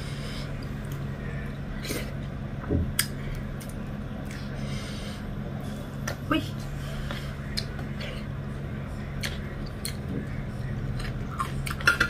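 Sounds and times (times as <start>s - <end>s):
steady low hum: 0.0s - 12.0s
chewing with wet smacks: 7.1s - 8.0s, 9.1s - 11.9s.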